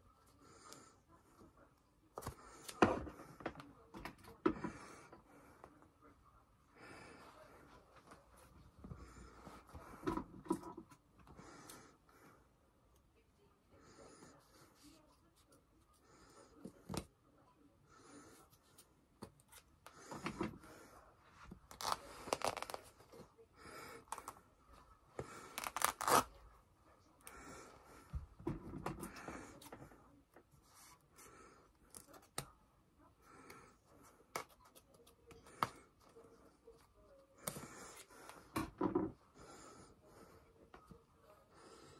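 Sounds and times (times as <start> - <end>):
fabric ripping: 25.6 - 26.3.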